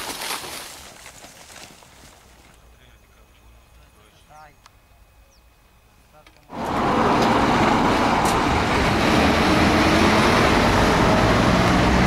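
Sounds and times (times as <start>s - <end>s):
tyres on gravel road: 0.0s - 4.8s, 6.0s - 12.0s
truck engine running: 6.5s - 12.0s.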